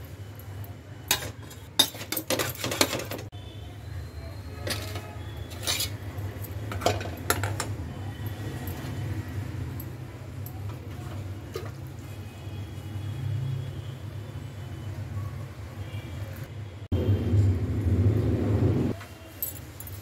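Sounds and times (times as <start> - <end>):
steel pots and utensils clinking: 1.0 - 3.3, 4.6 - 7.8, 9.8 - 12.1.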